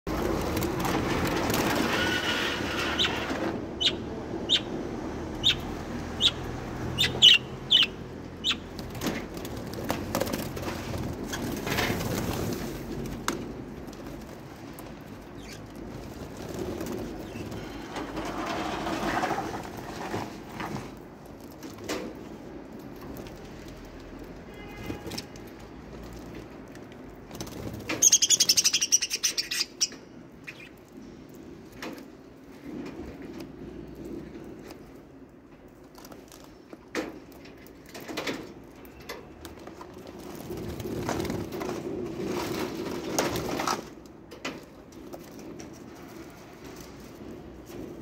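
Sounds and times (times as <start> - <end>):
budgerigars chattering: 7.0 - 8.6.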